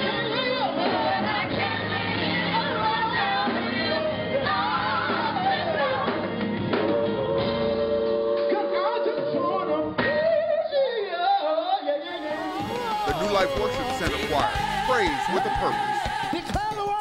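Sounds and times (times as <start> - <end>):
gospel group singing: 0.0 - 17.0
instrumental backing: 12.1 - 17.0.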